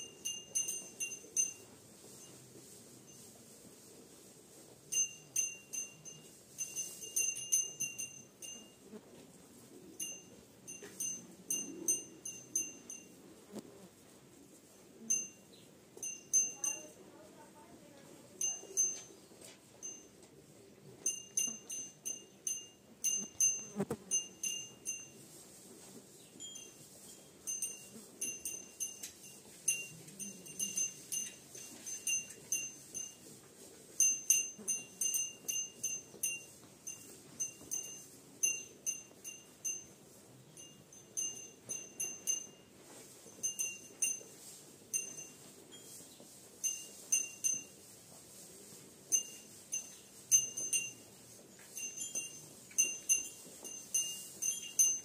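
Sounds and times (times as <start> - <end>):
small metal bell clinking: 0.0 - 3.5, 4.9 - 9.0, 10.0 - 13.2, 15.0 - 20.3, 20.9 - 25.5, 26.2 - 48.0, 49.1 - 55.0.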